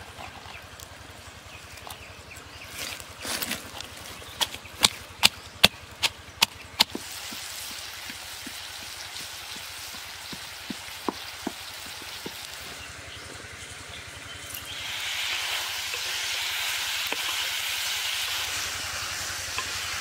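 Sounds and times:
pestle pounding in clay mortar: 0:04.2 - 0:12.5
food sizzling: 0:06.8 - 0:12.8, 0:14.5 - 0:20.0.

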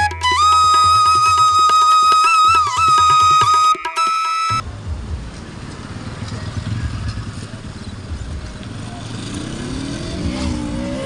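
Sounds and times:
vehicle engine passing: 0:04.7 - 0:11.0.

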